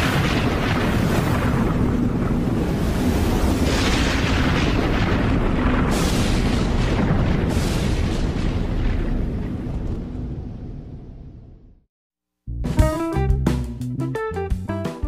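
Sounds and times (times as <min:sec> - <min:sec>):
deep thunder rumble: 0:00.0 - 0:11.8.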